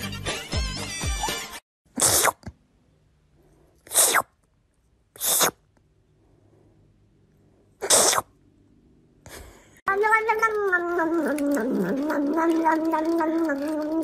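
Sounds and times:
person sneezing: 0:07.8 - 0:08.3.

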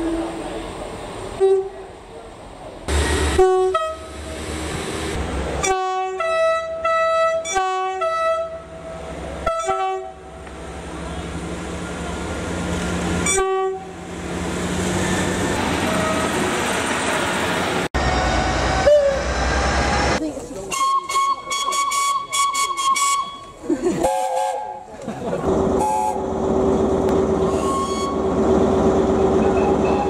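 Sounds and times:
passing train diesel engine: 0:00.0 - 0:30.0
two-tone train horns: 0:01.4 - 0:01.8, 0:02.9 - 0:04.2, 0:05.6 - 0:10.4, 0:13.2 - 0:14.0, 0:18.0 - 0:19.4, 0:20.7 - 0:24.9, 0:27.4 - 0:28.3, 0:29.4 - 0:30.0.

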